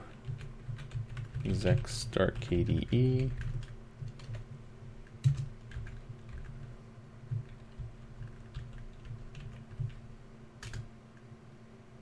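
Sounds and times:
faint steady hum: 0:00.0 - 0:12.0
typing on computer keyboard: 0:00.2 - 0:04.4, 0:05.0 - 0:06.7, 0:07.3 - 0:10.0, 0:10.6 - 0:10.9.

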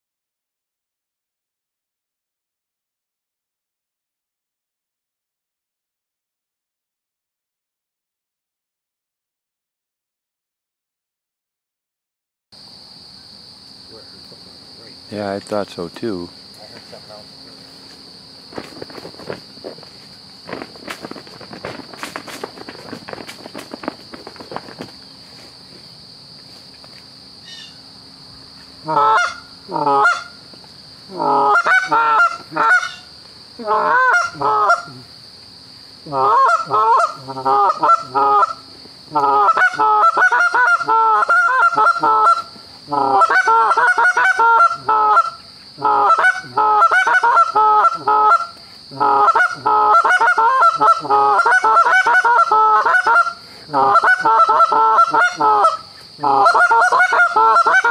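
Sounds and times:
geese honking and clucking: 0:18.5 - 0:25.8, 0:28.8 - 0:35.1, 0:36.0 - 0:57.9.

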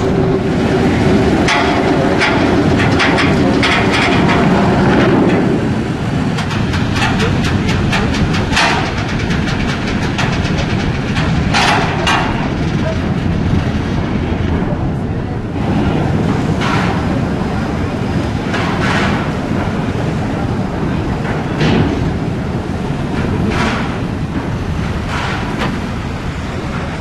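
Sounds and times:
metal loading ramp clanking: 0:00.0 - 0:13.7
low rumble: 0:00.0 - 0:27.0.

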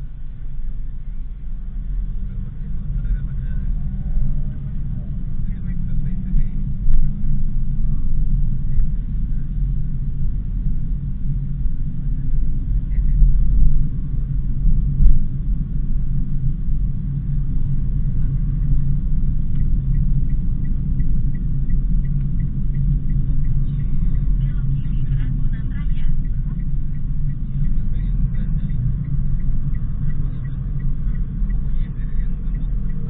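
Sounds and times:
car engine and road rumble: 0:00.0 - 0:33.0
light regular ticking: 0:18.4 - 0:33.0.

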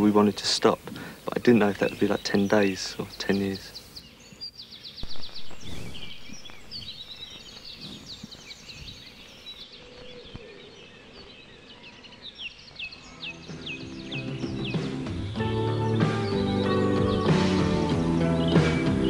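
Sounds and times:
birds chirping and singing: 0:00.0 - 0:19.0
low rumbling: 0:05.0 - 0:09.2.

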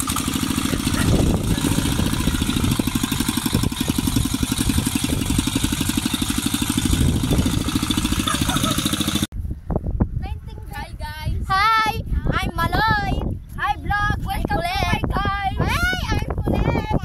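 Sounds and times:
small engine chugging: 0:00.0 - 0:09.3.

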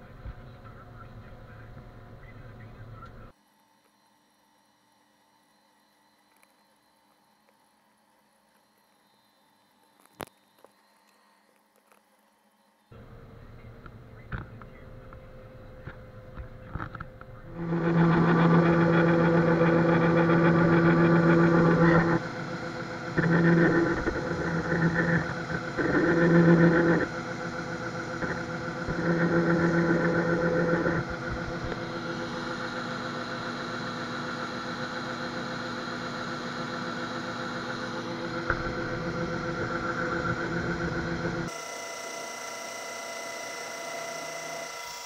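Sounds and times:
level-pitched machine hum: 0:00.0 - 0:45.0
combine harvester engine drone: 0:13.0 - 0:41.5.

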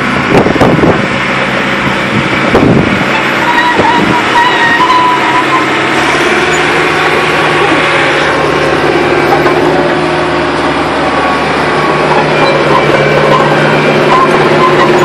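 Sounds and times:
diesel engine running: 0:00.0 - 0:15.0
thin whine: 0:01.7 - 0:15.0
metal clanks: 0:03.2 - 0:10.8.

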